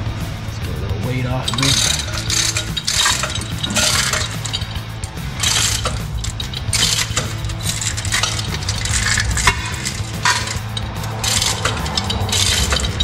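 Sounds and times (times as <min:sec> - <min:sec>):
metal tools clinking and scraping: 0:01.3 - 0:13.0.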